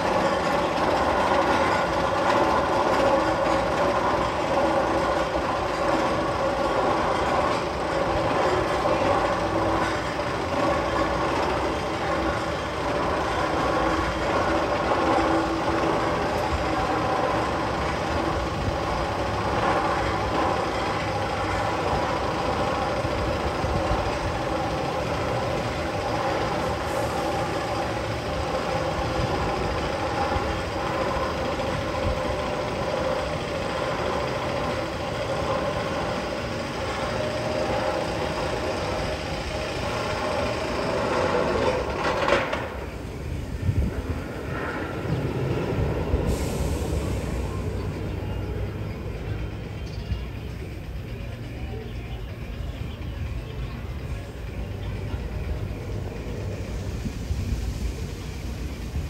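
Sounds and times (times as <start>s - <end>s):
faint mechanical whine: 0.0s - 59.0s
roller coaster chain lift clatter: 0.0s - 59.0s.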